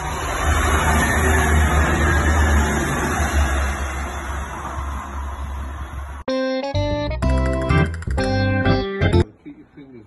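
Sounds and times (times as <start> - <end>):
diesel train running past: 0.0 - 6.2.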